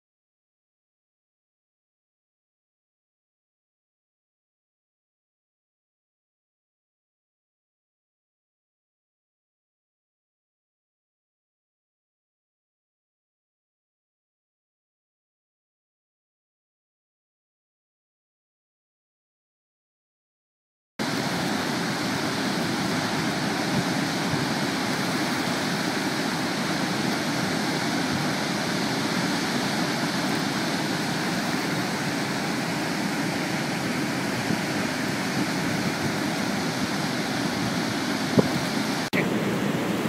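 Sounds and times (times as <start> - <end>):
water roaring over spillway: 21.0 - 40.0.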